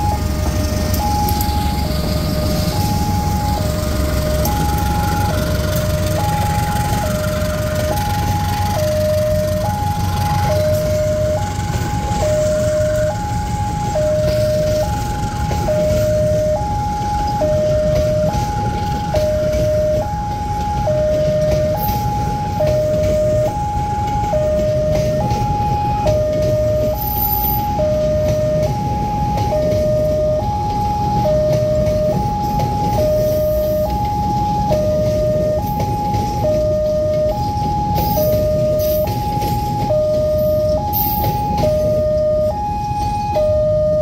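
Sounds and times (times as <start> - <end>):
steady low rumble: 0.0 - 27.0
two-tone crossing alarm: 0.0 - 44.0.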